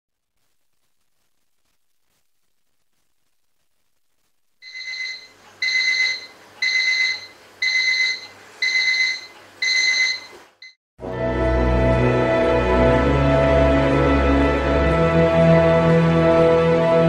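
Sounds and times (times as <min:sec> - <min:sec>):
electronic alarm clock beeping: 0:04.6 - 0:10.8.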